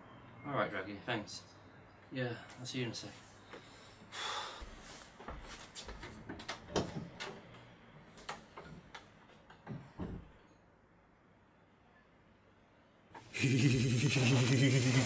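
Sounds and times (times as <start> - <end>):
footsteps: 4.6 - 6.5.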